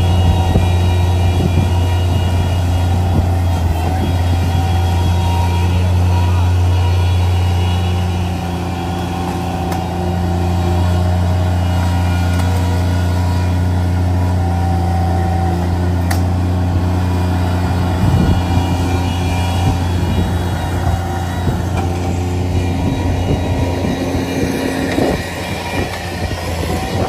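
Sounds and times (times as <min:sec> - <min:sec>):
loader engine running: 0:00.0 - 0:27.0.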